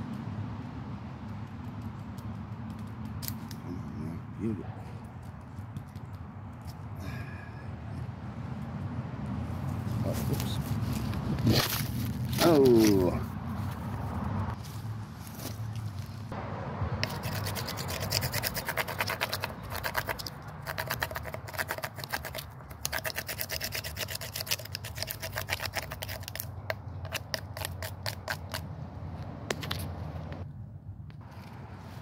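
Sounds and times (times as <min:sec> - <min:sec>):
knife scraping wood: 0:17.0 - 0:28.6.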